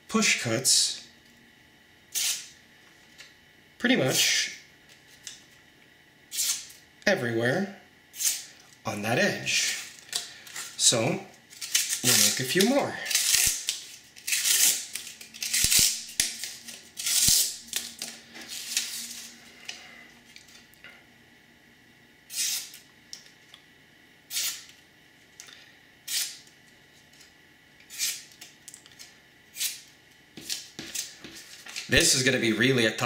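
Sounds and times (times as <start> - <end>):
knife cutting paper: 29.5 - 29.8.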